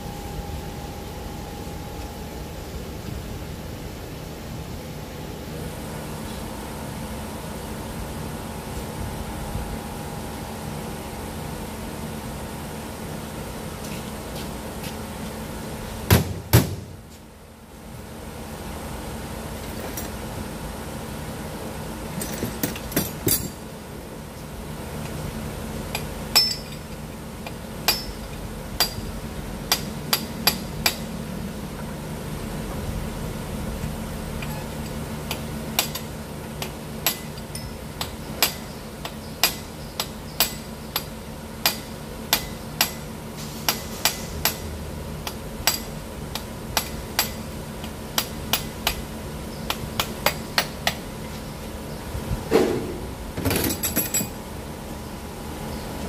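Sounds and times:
steady low hum: 0:00.0 - 0:56.0
wrench clinking on metal fittings: 0:26.0 - 0:27.0, 0:53.5 - 0:54.4.

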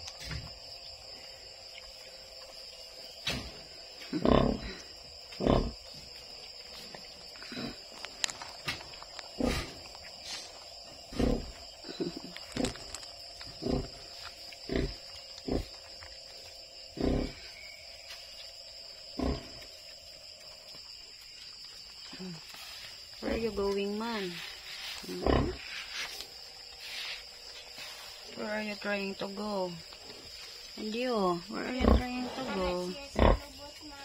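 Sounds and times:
sow grunting: 0:04.0 - 0:05.8.

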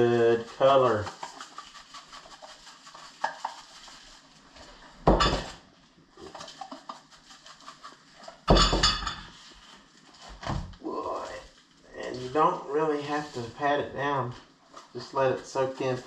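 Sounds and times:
spice shaker rattling: 0:00.4 - 0:04.4, 0:06.3 - 0:08.2.

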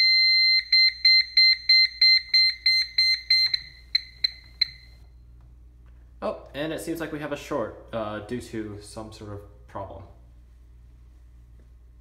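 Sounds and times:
fire alarm tone and beeping: 0:00.0 - 0:05.1.

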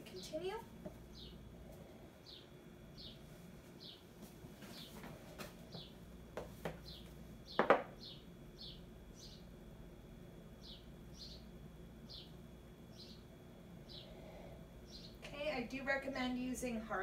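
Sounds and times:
bird chirping: 0:01.1 - 0:01.4, 0:02.2 - 0:03.2, 0:06.8 - 0:09.5, 0:10.6 - 0:14.2, 0:14.8 - 0:15.2
books knocking on tile floor: 0:07.6 - 0:07.9.

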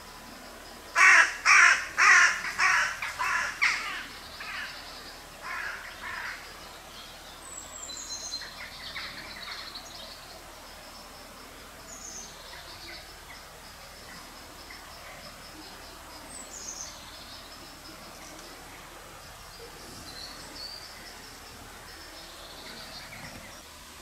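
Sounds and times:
crow cawing: 0:01.0 - 0:04.7, 0:05.4 - 0:06.4.

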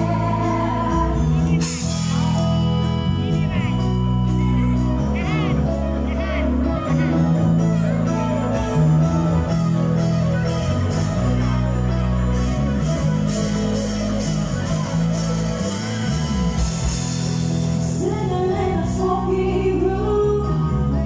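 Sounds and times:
woman singing: 0:00.0 - 0:01.8, 0:17.8 - 0:21.0
drums with steady cymbal beat: 0:00.0 - 0:04.4, 0:12.3 - 0:18.3
electric bass line: 0:00.0 - 0:21.0
electric guitars: 0:00.0 - 0:21.0
keyboard: 0:00.0 - 0:21.0.

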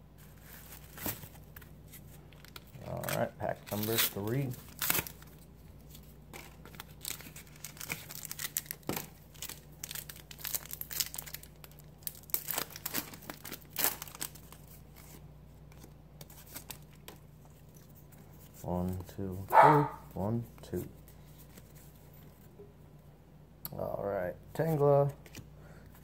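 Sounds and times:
foil wrapper tearing and crinkling: 0:02.3 - 0:05.5, 0:06.3 - 0:15.0.

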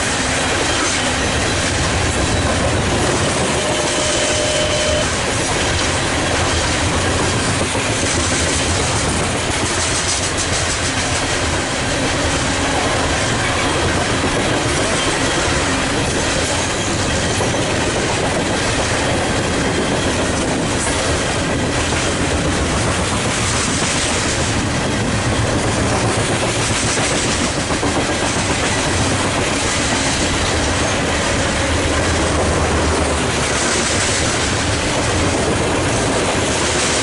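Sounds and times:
train wheels clattering on rails: 0:00.0 - 0:37.0.

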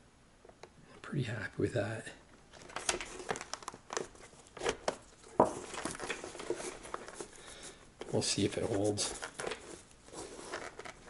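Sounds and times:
handling clicks and scrapes on helmet: 0:02.5 - 0:11.0.

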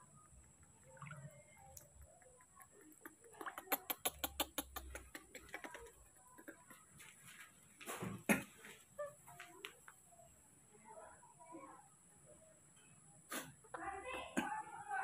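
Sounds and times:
water splashes and drips: 0:00.4 - 0:02.2, 0:02.9 - 0:05.5
sharp clicks: 0:01.7 - 0:06.6.

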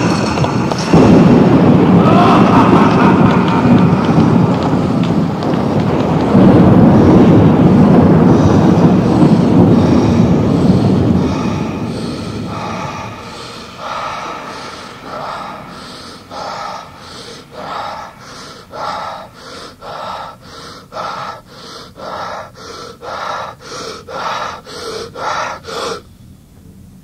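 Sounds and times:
low rumble: 0:00.0 - 0:26.0
gasping breaths: 0:00.0 - 0:26.1.

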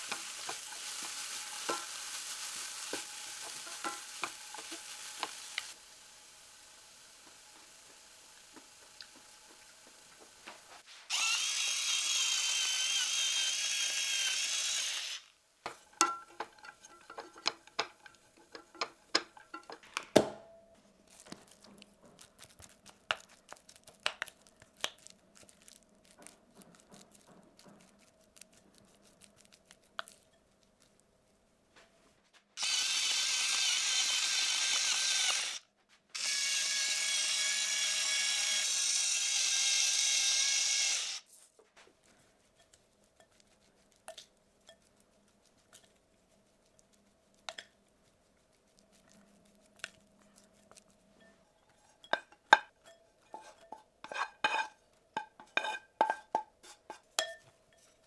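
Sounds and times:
appliance motor whining: 0:11.1 - 0:15.2.

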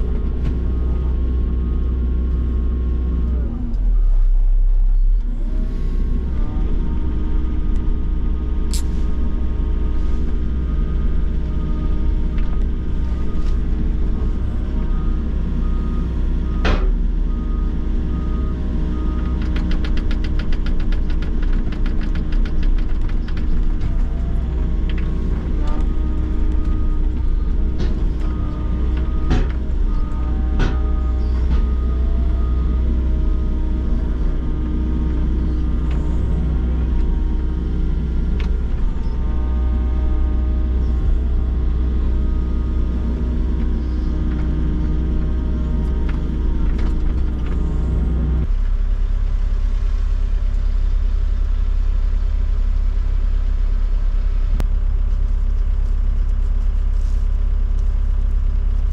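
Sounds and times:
excavator engine running: 0:00.0 - 0:58.9
hydraulic whine: 0:23.9 - 0:48.5.

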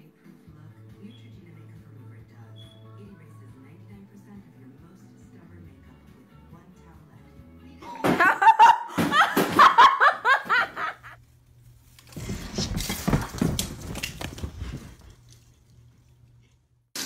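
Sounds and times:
person laughing hard: 0:08.0 - 0:11.2
rustling shuffling noise: 0:11.0 - 0:16.1.

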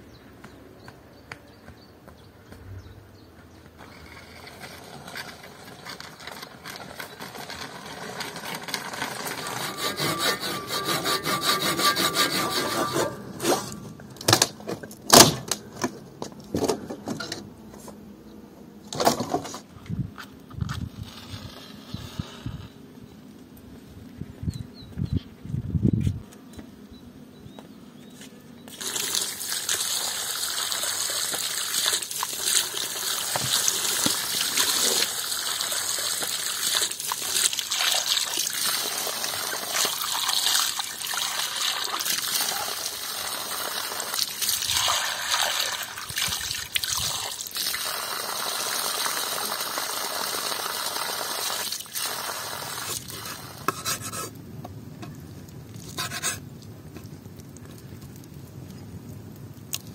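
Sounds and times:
water pouring and splashing: 0:28.7 - 0:53.7.

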